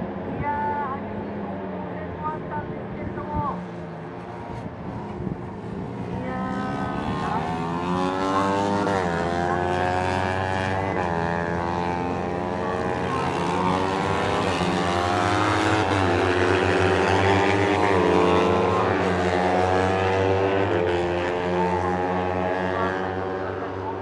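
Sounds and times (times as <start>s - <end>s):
racing motorcycle engines revving: 0.0s - 24.0s.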